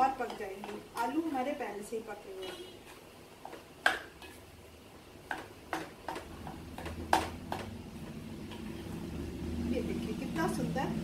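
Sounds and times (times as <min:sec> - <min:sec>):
spatula knocking and scraping a pan: 0:00.0 - 0:01.7, 0:02.3 - 0:04.6, 0:05.2 - 0:09.4.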